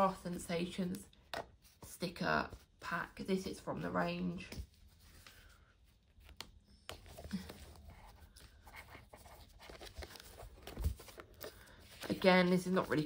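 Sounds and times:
paper rustling and scratching: 4.4 - 13.0.

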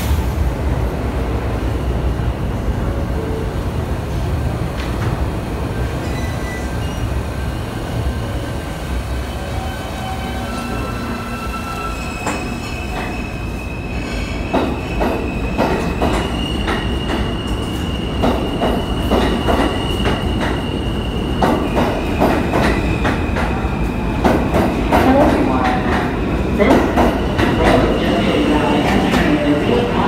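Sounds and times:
train wheels clacking on rails: 14.0 - 30.0.

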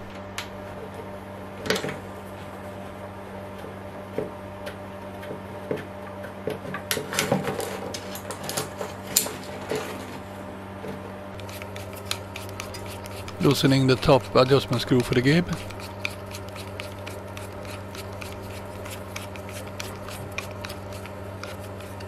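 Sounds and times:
steady low hum: 0.0 - 3.6, 10.0 - 22.0.

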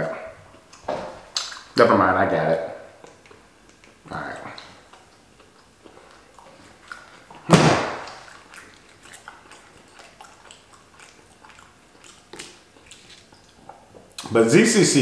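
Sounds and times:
loud thump on table: 7.5 - 8.1.

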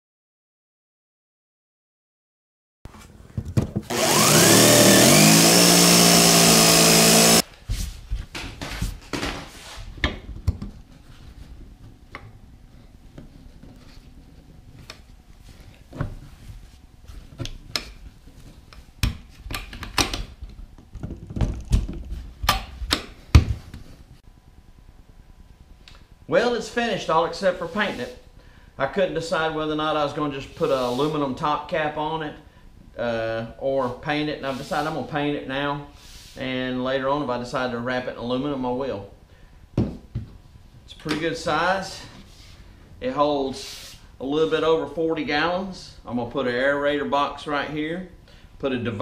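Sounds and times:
power drill whining: 3.9 - 7.4.

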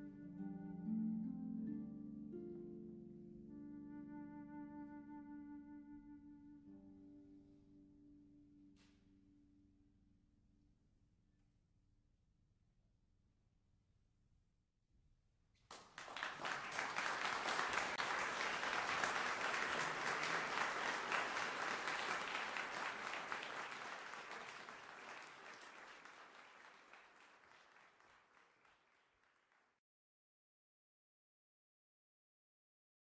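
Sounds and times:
crowd applauding: 15.7 - 29.7.

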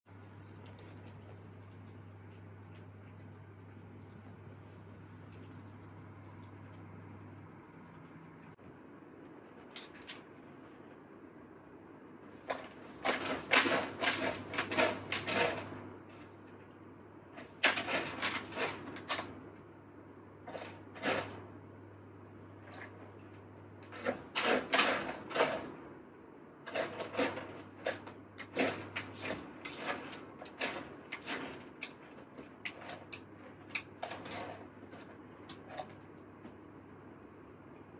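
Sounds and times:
cat scratching litter: 12.3 - 19.4, 20.4 - 21.6, 22.4 - 25.8, 26.6 - 36.7.

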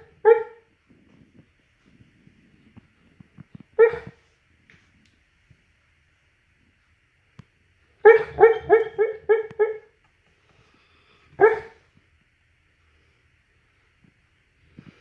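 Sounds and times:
dog barking in its sleep: 0.0 - 0.7, 3.8 - 4.2, 8.0 - 9.9, 11.4 - 11.8.

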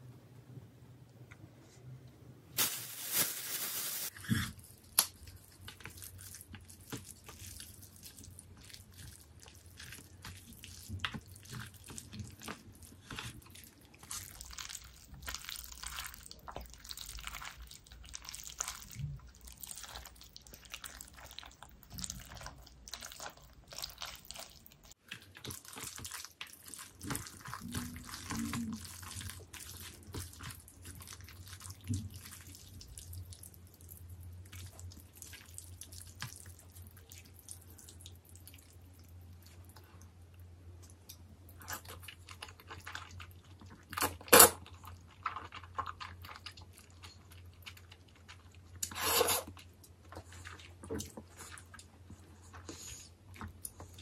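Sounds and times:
noodles mixed with chopsticks: 2.6 - 39.6.

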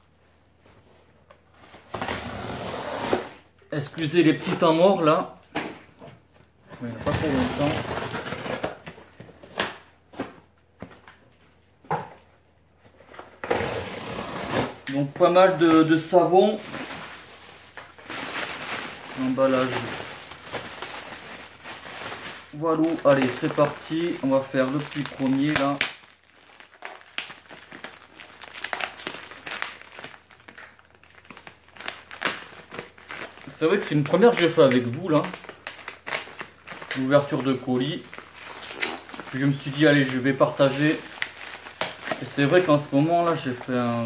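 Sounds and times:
bubble wrap rustling: 6.2 - 10.5, 12.7 - 44.0
plastic mailer crinkling: 6.8 - 9.6, 14.9 - 44.0.

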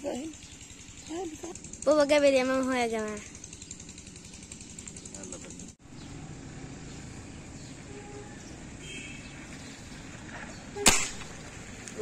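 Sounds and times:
faint outdoor background: 0.0 - 12.0
gunshot: 10.8 - 11.4.

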